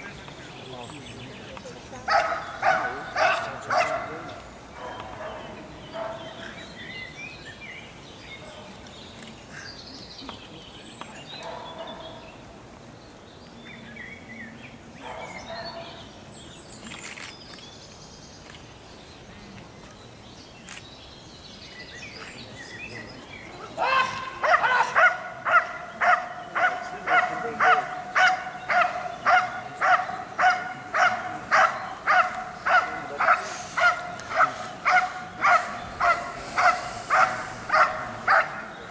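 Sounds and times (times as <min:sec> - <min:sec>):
dog barking sharply: 0:02.1 - 0:04.1, 0:24.4 - 0:38.6.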